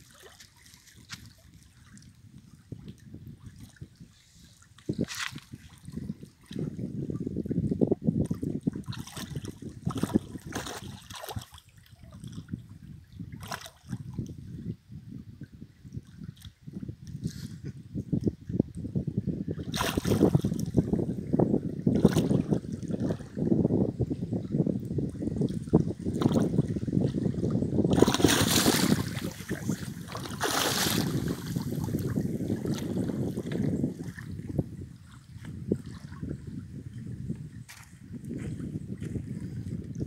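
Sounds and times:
water lapping at shoreline: 0:00.0 - 0:14.7, 0:15.8 - 0:18.6, 0:19.5 - 0:40.0
wind buffeting microphone: 0:00.0 - 0:40.0
fish splashing at surface: 0:27.9 - 0:31.7.

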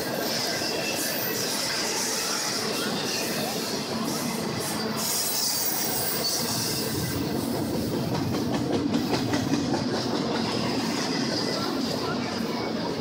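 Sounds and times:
train wheels on track: 0:00.0 - 0:13.0
clacks over rail joints: 0:07.1 - 0:12.4.

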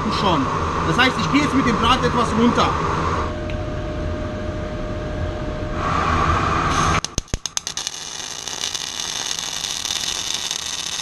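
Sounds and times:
welder hum: 0:05.7 - 0:11.0
welding arc crackling: 0:06.7 - 0:11.0.

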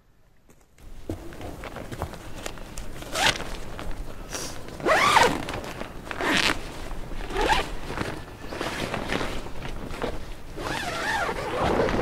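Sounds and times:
tent door zipper: 0:03.1 - 0:03.4, 0:04.8 - 0:05.6, 0:06.2 - 0:09.5, 0:10.6 - 0:12.0.

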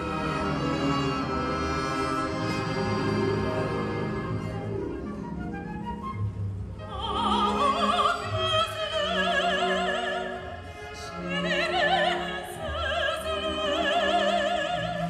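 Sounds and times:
orchestra strings: 0:00.0 - 0:15.0
woman singing opera: 0:06.8 - 0:15.0.

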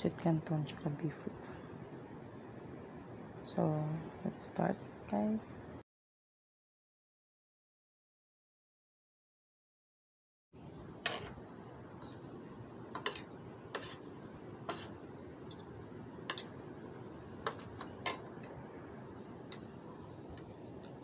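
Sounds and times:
cutlery clicking on a plate: 0:13.0 - 0:13.9, 0:16.3 - 0:16.5.

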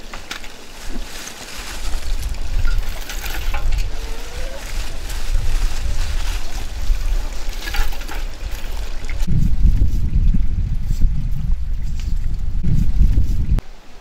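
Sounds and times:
charcoal clinking in metal bucket: 0:00.0 - 0:09.0
wind rumbling on microphone: 0:00.0 - 0:13.8.

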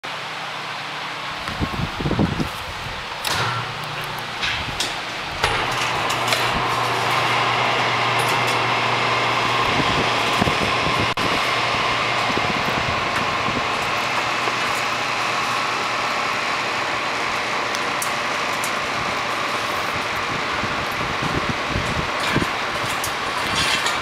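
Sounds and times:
low hum: 0:01.2 - 0:24.0
hangar door winch running: 0:03.0 - 0:24.0.

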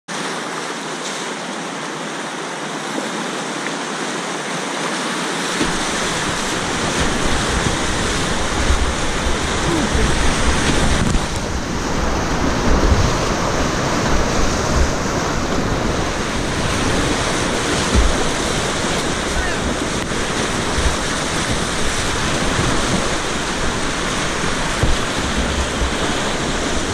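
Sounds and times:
whitewater rapids rushing: 0:00.1 - 0:26.9
low buffeting rumble: 0:05.6 - 0:26.9.

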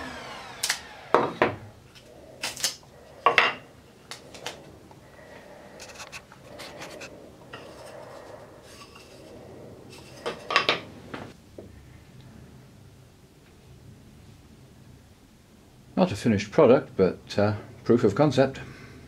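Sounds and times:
masking tape peeling: 0:00.0 - 0:01.1, 0:02.0 - 0:02.8
wood rubbing and scraping: 0:00.0 - 0:11.4.

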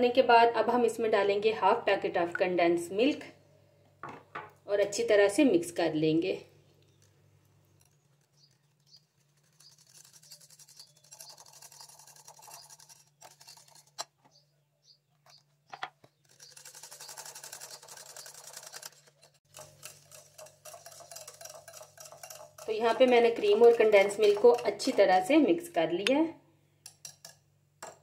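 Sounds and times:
whisk beating in glass bowl: 0:08.9 - 0:14.0, 0:16.3 - 0:25.3
whisk clicks: 0:16.3 - 0:25.0.

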